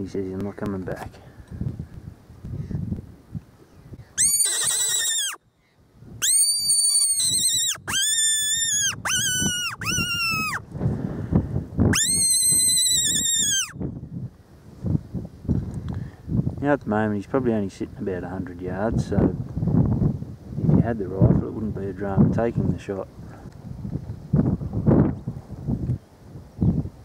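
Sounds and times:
high-pitched whistle squeals: 0:04.2 - 0:05.4, 0:06.2 - 0:10.6, 0:11.9 - 0:13.8.

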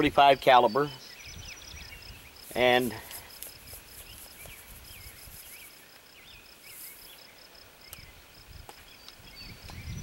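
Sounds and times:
bird chirping: 0:00.0 - 0:10.0.

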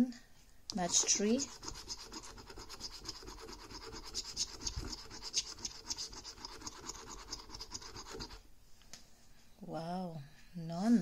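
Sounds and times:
coin scraping a scratchcard: 0:00.8 - 0:08.4.

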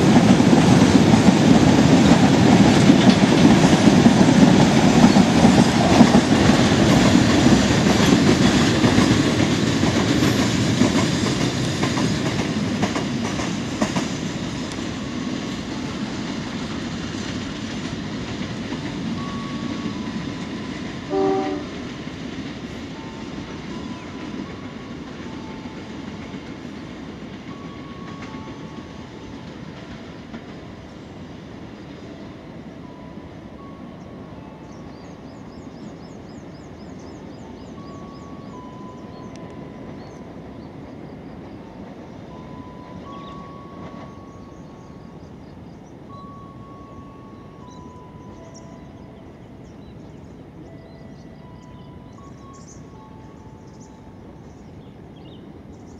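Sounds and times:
train wheels rumbling on rails: 0:00.0 - 0:55.9
birds chirping: 0:04.9 - 0:05.6, 0:33.6 - 0:55.9.

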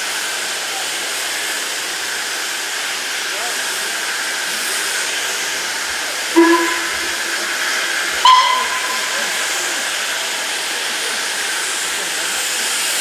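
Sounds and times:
steam hissing from locomotive: 0:00.0 - 0:13.0
steam whistle blasts: 0:06.4 - 0:10.0.

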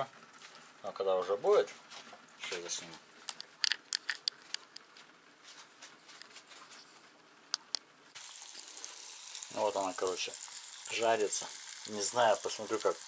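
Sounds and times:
oil crackling and popping: 0:07.6 - 0:13.0
fish frying in hot oil: 0:08.2 - 0:13.0.

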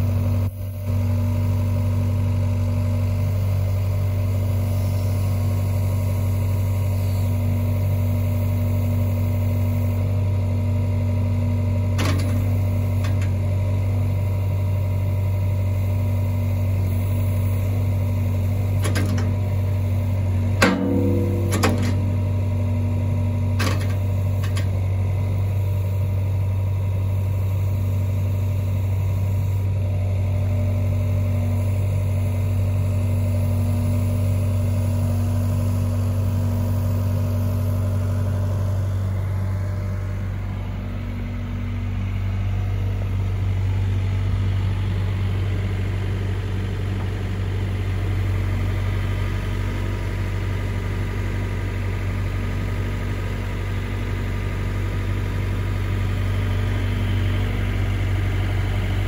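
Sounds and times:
excavator diesel engine running: 0:00.0 - 0:59.0
metallic clanks: 0:20.6 - 0:22.7, 0:23.6 - 0:24.7.

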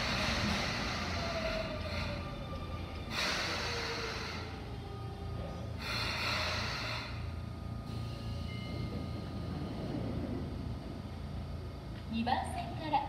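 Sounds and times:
air brakes hissing: 0:00.0 - 0:04.8, 0:05.8 - 0:08.5
train braking with motor whine: 0:00.0 - 0:13.0
low rumble: 0:07.1 - 0:13.0.

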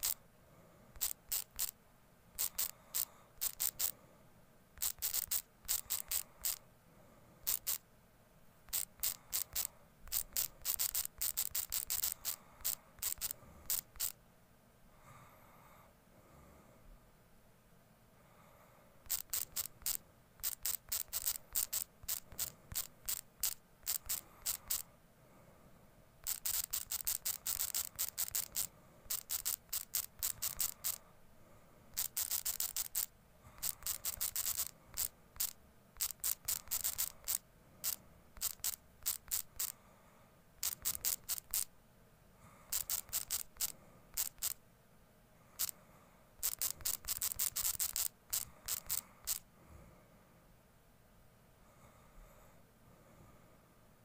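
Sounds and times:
phone keyboard typing clicks: 0:02.4 - 0:03.9, 0:04.8 - 0:06.6, 0:08.7 - 0:14.2, 0:19.1 - 0:24.8, 0:26.2 - 0:31.0, 0:32.0 - 0:39.7, 0:40.6 - 0:41.7, 0:42.7 - 0:44.6, 0:46.4 - 0:49.4.

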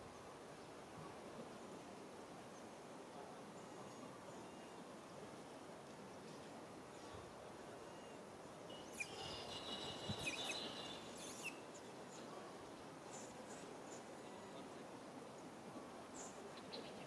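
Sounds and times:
outdoor background noise: 0:00.0 - 0:17.0
high-pitched chirping: 0:08.8 - 0:11.6.

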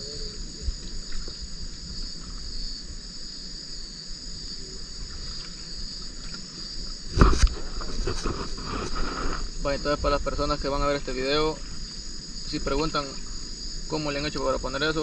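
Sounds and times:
crickets and insects trilling: 0:00.0 - 0:15.0
loud thumps: 0:07.1 - 0:09.4.

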